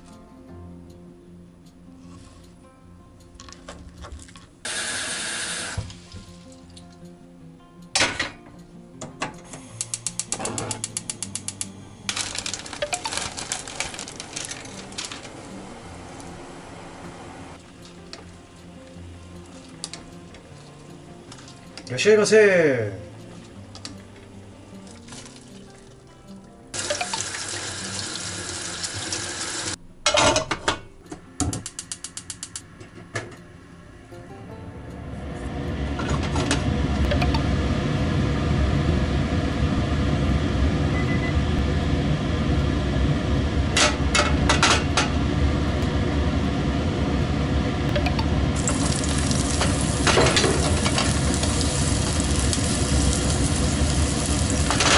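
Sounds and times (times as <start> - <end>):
stove igniter clicking: 9.0 - 12.2, 31.4 - 32.7
plastic bag crinkling: 12.1 - 15.4.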